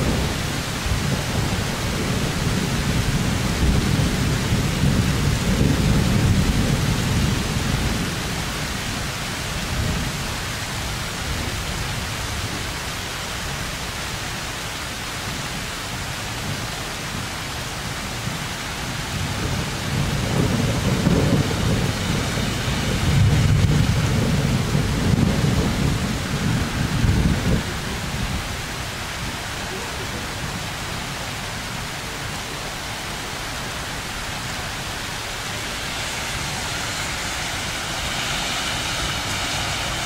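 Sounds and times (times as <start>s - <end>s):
thunder rumbling: 0.0s - 11.7s, 19.1s - 32.5s, 33.4s - 40.0s
rain falling: 0.0s - 40.0s.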